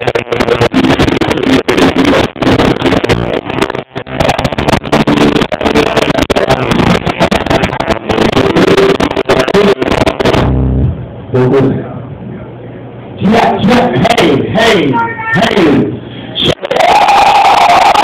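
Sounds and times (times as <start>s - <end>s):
electric guitar: 0.0s - 11.4s, 16.3s - 18.0s
distorted live band: 0.0s - 11.9s, 13.1s - 18.0s.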